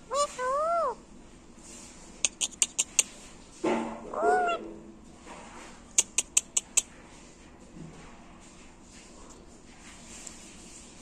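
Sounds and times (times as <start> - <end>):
parakeet call: 0.1 - 1.0, 4.1 - 4.7
sharp high clicks: 6.0 - 6.9.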